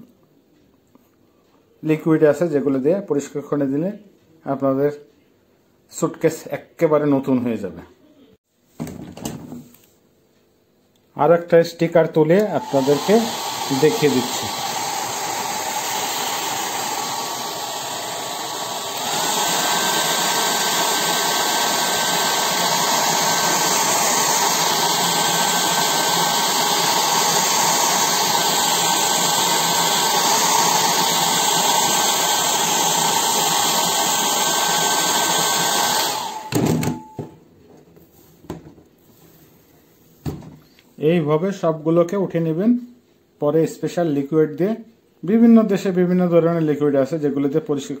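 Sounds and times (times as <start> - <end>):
hair dryer running: 12.4 - 37.3.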